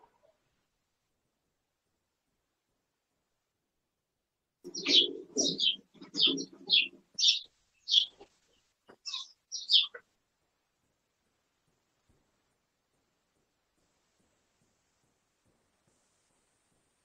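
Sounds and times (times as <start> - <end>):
bird chirping: 4.7 - 10.0.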